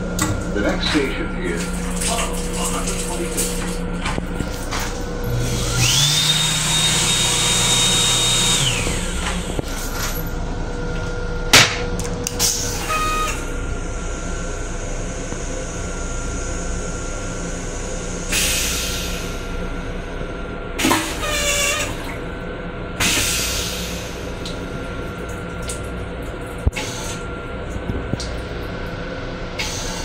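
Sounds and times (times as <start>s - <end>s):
hand dryer whining: 0.0s - 10.3s.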